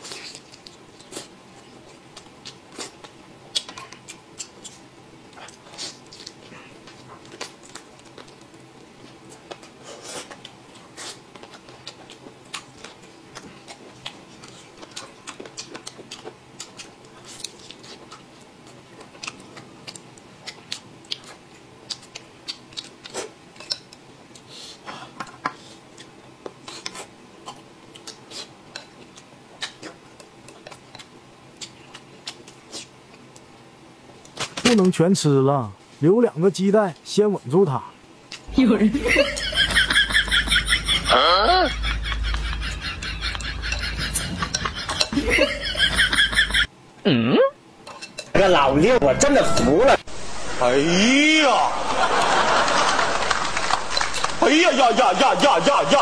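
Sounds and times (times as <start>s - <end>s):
man chewing wetly: 0.0s - 33.5s, 42.6s - 45.4s
mouth and teeth clicks: 2.2s - 4.8s, 11.3s - 24.5s.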